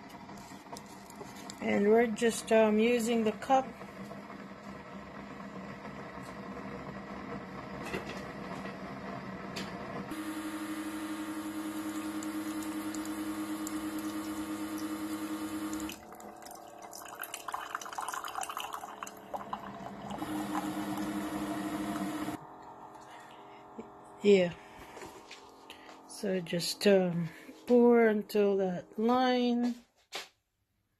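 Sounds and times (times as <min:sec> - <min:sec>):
coffee maker pump running: 0:00.0 - 0:26.2
coffee maker humming: 0:00.0 - 0:26.4
hot water pouring into mug: 0:10.2 - 0:22.4
sputtering and dripping: 0:11.8 - 0:22.3.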